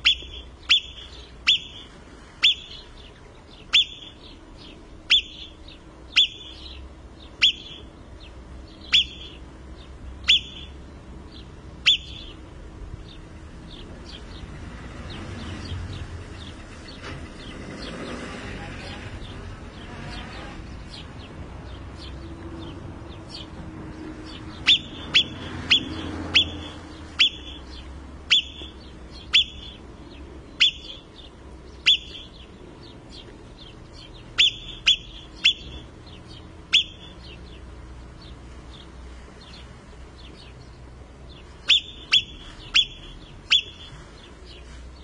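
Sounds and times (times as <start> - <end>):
marmot alarm whistles: 0.0 - 2.8, 3.7 - 4.2, 5.1 - 6.7, 7.4 - 7.9, 8.9 - 9.4, 10.2 - 10.8, 11.8 - 12.4, 24.6 - 27.7, 28.3 - 29.8, 30.6 - 31.0, 31.8 - 32.4, 34.4 - 35.9, 36.7 - 37.2, 41.6 - 44.0.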